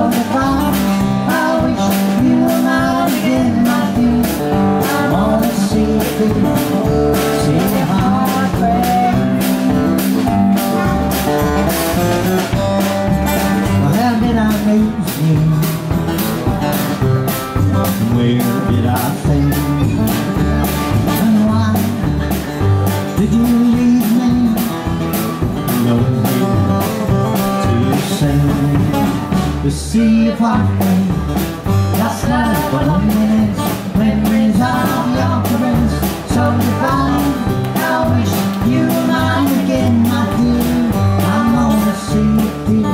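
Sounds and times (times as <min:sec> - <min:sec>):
bass line: 0:00.0 - 0:42.9
guitar: 0:00.0 - 0:42.9
steady drum beat: 0:00.0 - 0:42.9.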